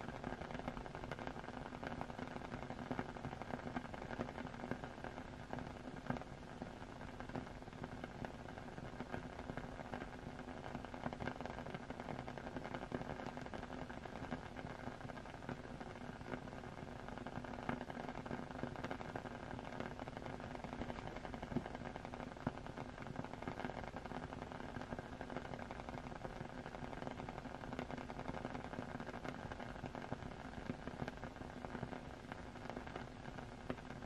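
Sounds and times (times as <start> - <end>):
faint steady hum: 0.0 - 34.0
small crackles: 0.0 - 34.0.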